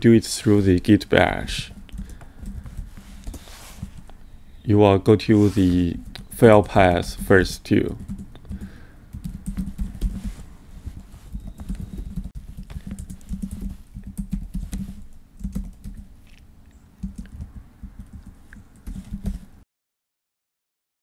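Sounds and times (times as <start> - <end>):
typing on keyboard: 1.6 - 4.1, 7.8 - 16.1, 17.0 - 19.5.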